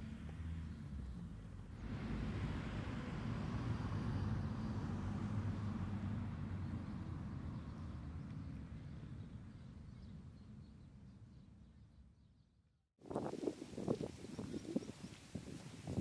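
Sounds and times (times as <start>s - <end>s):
vehicle engine rumble: 0.0s - 11.0s.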